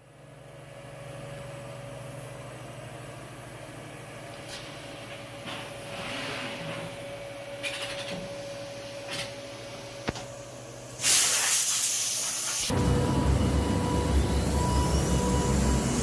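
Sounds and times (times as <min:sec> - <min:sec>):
short air hisses: 0:11.0 - 0:12.7.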